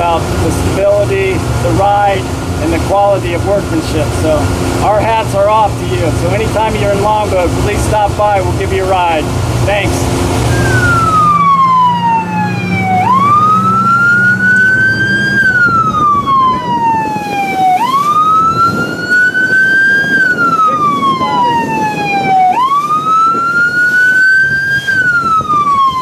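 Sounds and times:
low engine hum: 0.0 - 26.0
wind or water noise: 0.0 - 26.0
electronic siren wailing: 10.4 - 26.0.

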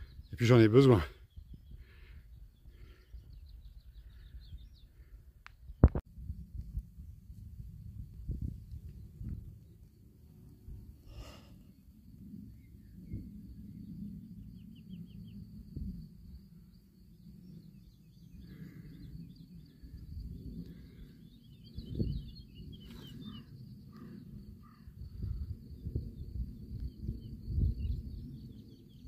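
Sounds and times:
small birds chirping: 0.0 - 5.9, 16.8 - 25.4
wind rumble on microphone: 0.0 - 29.0.

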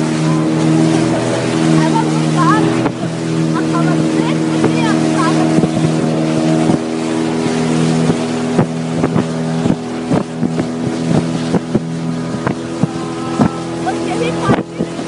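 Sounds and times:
boat motor running: 0.0 - 15.0
water rushing past hull: 0.0 - 15.0
wind on microphone: 0.0 - 15.0.

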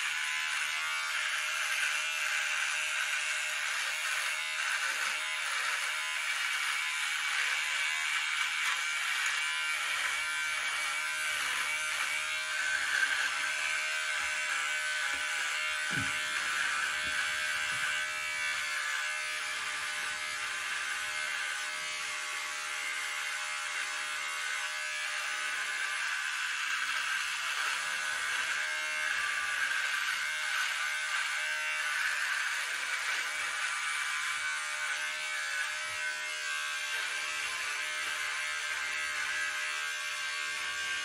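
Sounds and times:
electric hair trimmer buzzing: 0.0 - 41.0.

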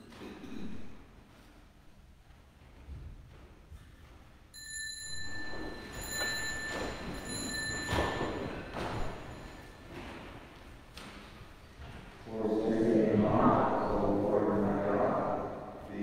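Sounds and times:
small high-pitched bell ringing: 4.5 - 9.8.

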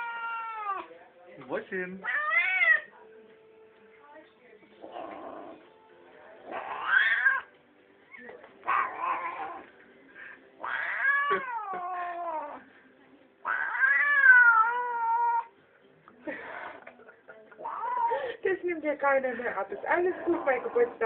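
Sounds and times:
cat yowling: 0.0 - 0.9, 2.0 - 2.9, 6.4 - 7.5, 8.6 - 9.6, 10.6 - 12.6, 13.4 - 15.5, 17.6 - 18.1.

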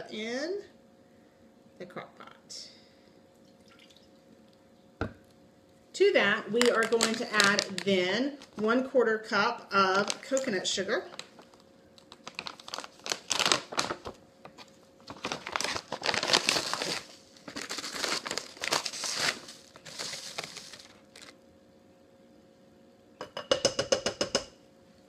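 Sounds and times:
plastic pouch crinkling: 6.5 - 8.6, 9.9 - 10.5, 11.1 - 21.4.

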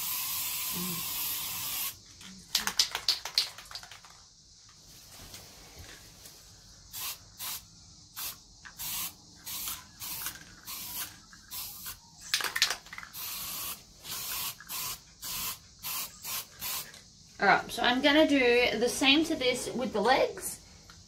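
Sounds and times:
aerosol can spraying in bursts: 0.0 - 2.0, 6.9 - 12.0, 13.1 - 17.0.

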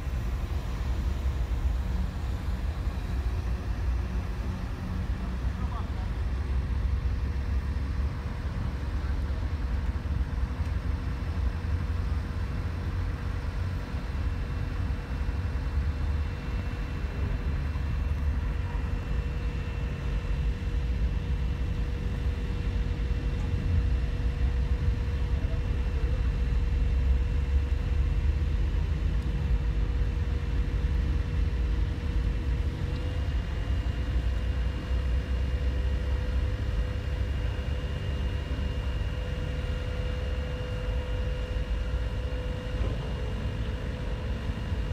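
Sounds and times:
high engine whine: 0.0 - 44.9.

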